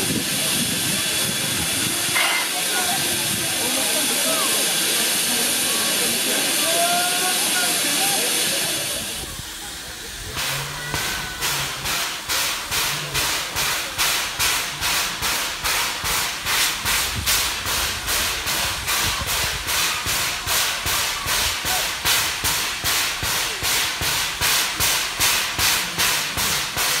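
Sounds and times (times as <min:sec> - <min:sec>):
steam locomotive chuffing: 0:00.0 - 0:27.0.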